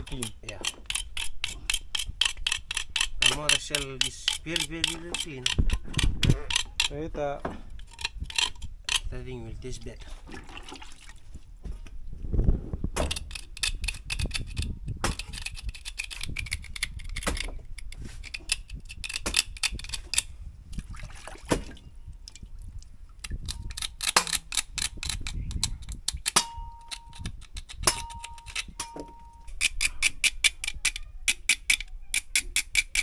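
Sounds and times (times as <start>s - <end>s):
knife scraping a shell: 0.0s - 7.0s, 7.8s - 9.3s, 13.0s - 20.4s, 23.2s - 33.0s.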